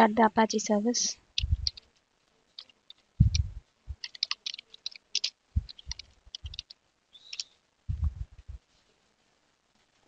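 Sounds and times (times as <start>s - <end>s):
dull low thumps: 1.4s - 1.8s, 3.2s - 4.0s, 5.5s - 6.6s, 7.9s - 8.6s
typing on computer keyboard: 1.4s - 1.9s, 2.6s - 3.4s, 4.0s - 7.5s.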